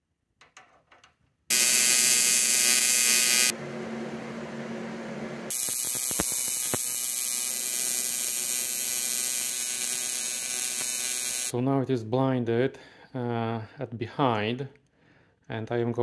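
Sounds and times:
welding arc buzzing: 1.5 - 3.6, 5.5 - 11.5.

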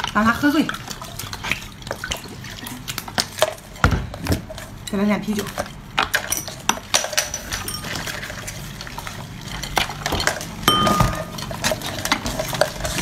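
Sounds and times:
glass and dishware clinking: 6.2 - 8.4, 10.0 - 12.2.

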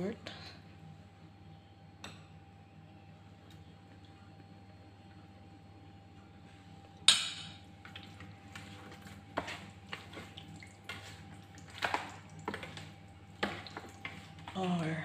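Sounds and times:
wet squelching of mixing: 7.8 - 15.0.

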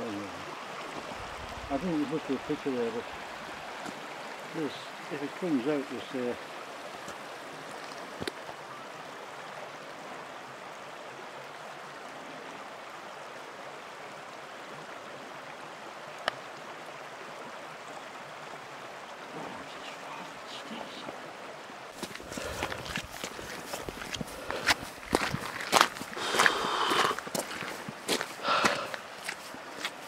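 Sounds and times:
stream running over stones: 0.0 - 30.0
footsteps on gravel: 22.0 - 30.0.

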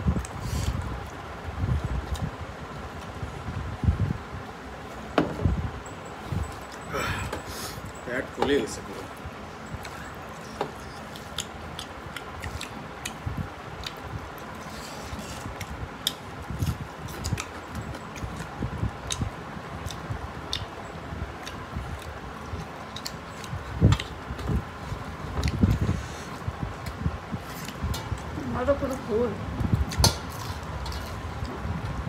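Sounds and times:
mouths chewing: 6.1 - 32.0
fingers kneading rice on plates: 6.4 - 29.0.

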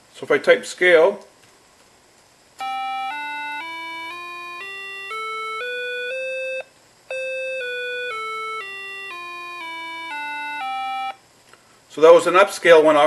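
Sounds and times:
square-wave tones playing a scale: 2.6 - 11.2.

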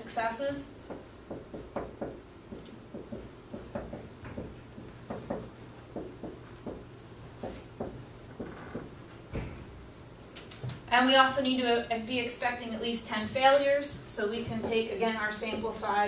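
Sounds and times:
marker writing on whiteboard: 0.8 - 9.4, 13.2 - 16.0.

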